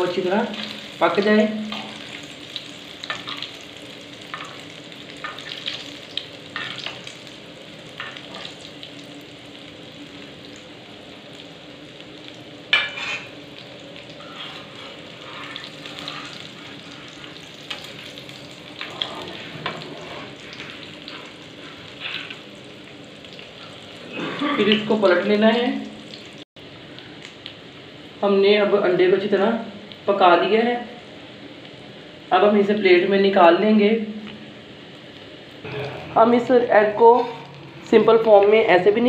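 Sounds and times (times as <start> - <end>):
omelette sizzling in oil: 0.0 - 28.3
metal utensils scraping pan: 12.8 - 13.3, 14.2 - 17.9.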